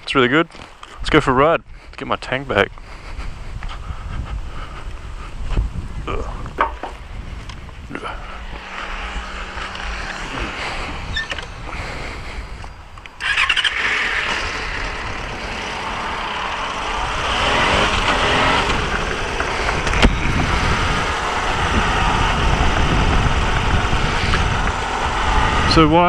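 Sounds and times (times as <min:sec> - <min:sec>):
wind rushing over microphone: 0:00.0 - 0:26.0
motorcycle engine pulling away: 0:07.0 - 0:26.0.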